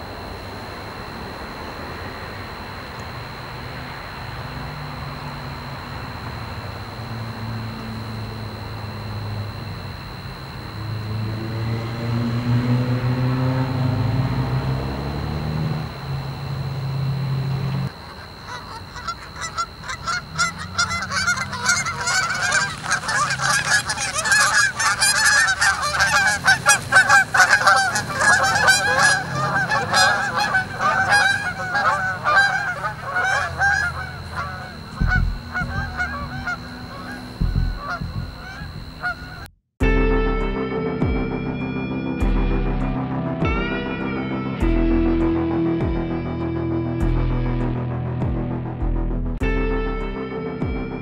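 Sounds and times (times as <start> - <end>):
geese honking: 17.6 - 39.5
guitar tune: 39.8 - 51.0.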